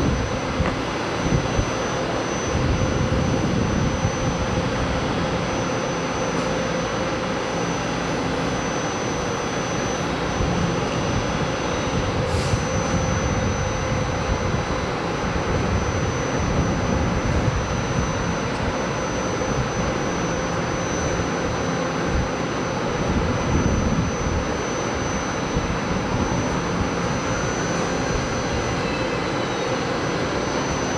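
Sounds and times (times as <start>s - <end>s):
brief air hiss: 12.2s - 12.7s.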